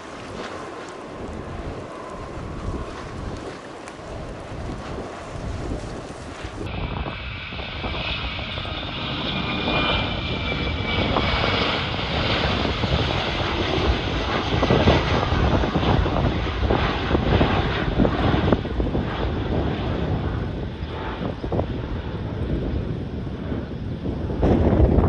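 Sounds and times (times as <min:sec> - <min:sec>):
jet engine rumble: 0:00.0 - 0:25.0.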